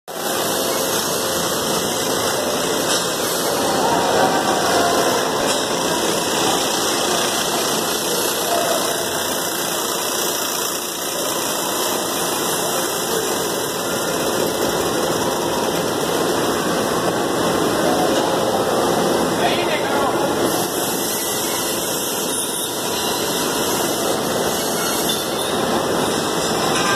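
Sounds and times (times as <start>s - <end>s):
processing line machinery running: 0.1s - 26.9s.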